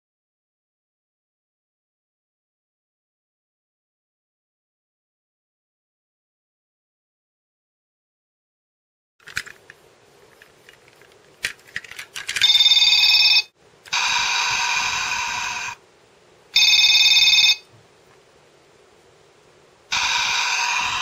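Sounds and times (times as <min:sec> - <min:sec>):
plastic toy clicking: 0:09.2 - 0:09.6, 0:10.7 - 0:12.6
toy train electronic beeps: 0:12.4 - 0:15.8, 0:19.9 - 0:21.0.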